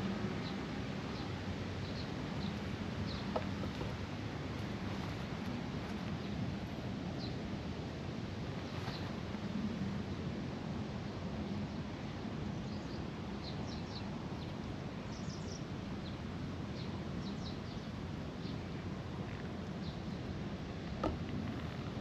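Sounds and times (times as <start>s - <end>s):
low background hiss and rumble: 0.0s - 22.0s
small birds chirping: 0.4s - 4.0s, 15.1s - 20.3s.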